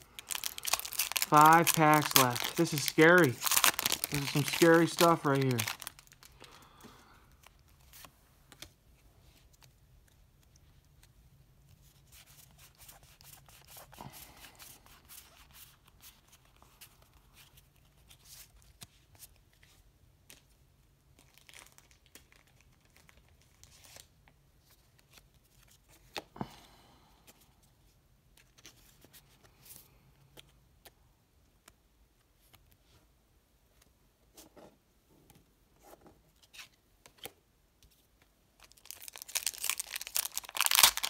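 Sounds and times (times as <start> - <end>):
cards rustling being flipped: 0.0 - 6.5, 7.3 - 20.6, 28.3 - 31.0, 35.8 - 41.0.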